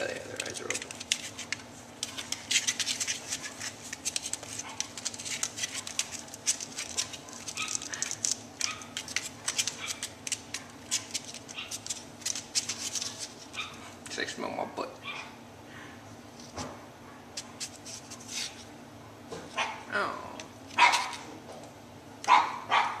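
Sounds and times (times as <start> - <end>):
puppy claws scratching on cardboard: 0.4 - 13.8.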